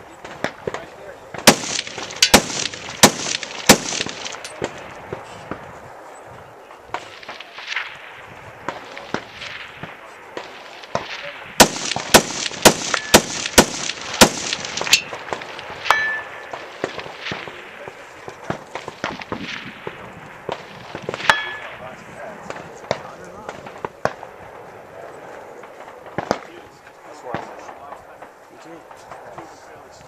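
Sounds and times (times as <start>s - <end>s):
loud gunshots: 0.3s - 4.8s, 7.0s - 21.9s
steel target ringing: 15.8s - 16.5s, 21.2s - 21.8s.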